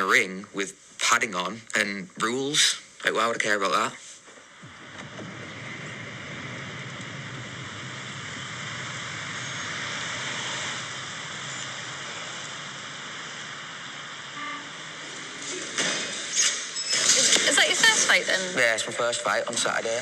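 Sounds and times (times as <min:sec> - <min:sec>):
road traffic noise: 0:05.6 - 0:18.2.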